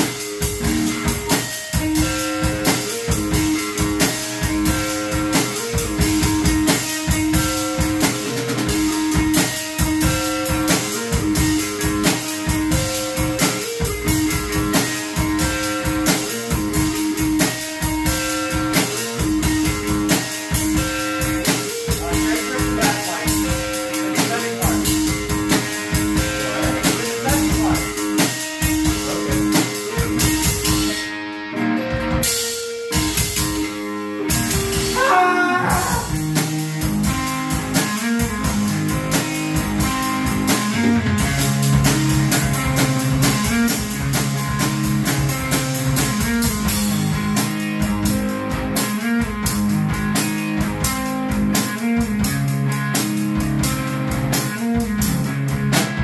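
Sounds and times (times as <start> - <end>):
acoustic drum kit: 0.0 - 56.0
electric guitar through an amp: 0.0 - 56.0.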